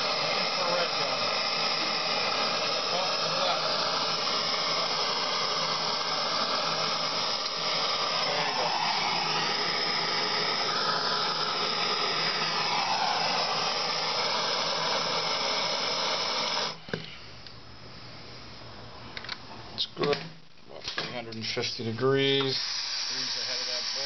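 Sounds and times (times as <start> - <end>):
torch shut-off click: 0.0 - 16.8
gas torch hissing and roaring: 0.0 - 17.0, 21.6 - 24.0.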